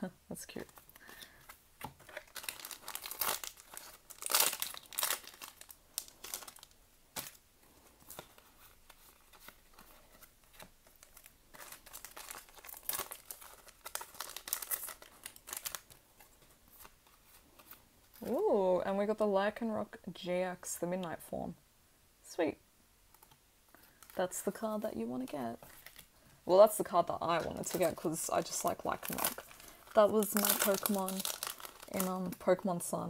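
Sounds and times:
cards and wrapper crinkling: 0.5s - 18.4s, 23.1s - 24.3s, 25.6s - 26.2s, 26.8s - 32.7s.

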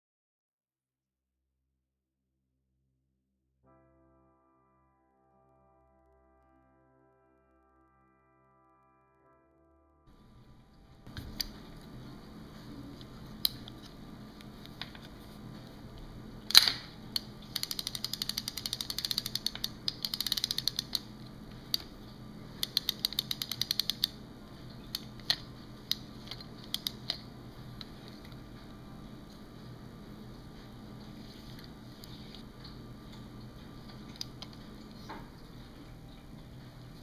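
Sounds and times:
faint steady hum: 3.7s - 37.0s
fishing reel mechanism clicking: 16.5s - 21.1s, 22.6s - 24.2s, 24.9s - 27.2s.

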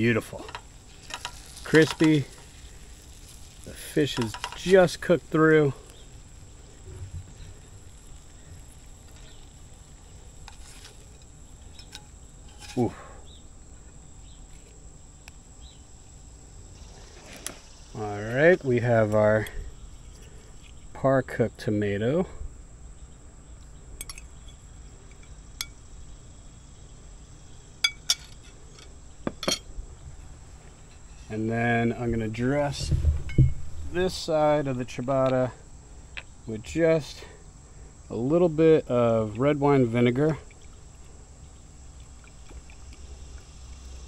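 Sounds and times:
crickets chirring: 0.0s - 44.0s
utensils clinking on cookware: 4.1s - 4.7s, 27.8s - 29.7s
soft low bump: 32.6s - 34.9s.

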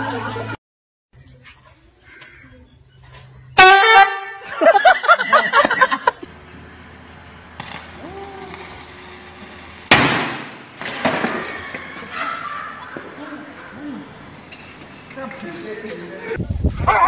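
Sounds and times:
loud horn blast: 3.6s - 4.5s
firecracker bang: 7.6s - 11.6s.

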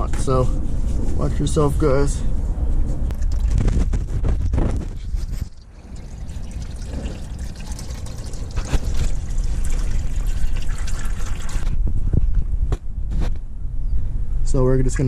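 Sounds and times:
oil pouring into drain pan: 4.9s - 11.8s.

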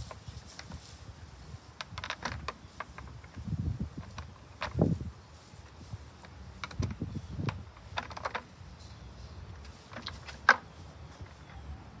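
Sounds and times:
clicks and knocks of handling engine parts: 6.2s - 9.0s, 9.6s - 10.7s.

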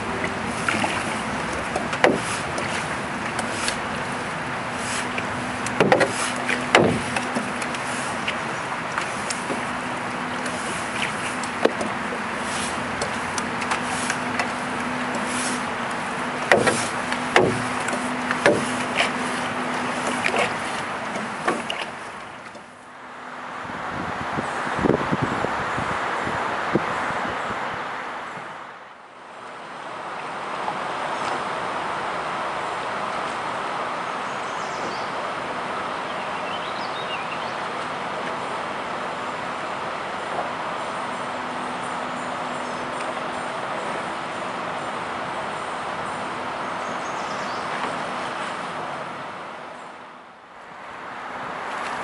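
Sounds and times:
paddle strokes in water: 0.0s - 23.7s, 29.4s - 52.0s
wind noise: 23.6s - 28.6s.

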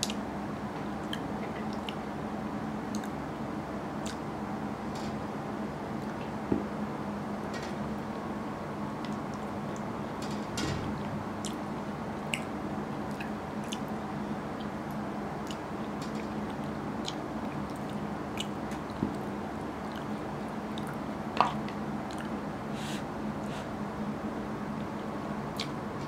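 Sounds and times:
chewing: 13.1s - 13.9s.

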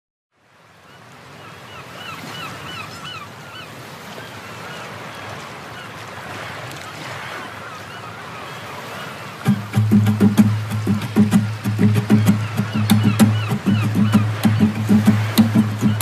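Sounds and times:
waves washing: 0.4s - 16.0s
bird giving short calls: 9.5s - 16.0s.

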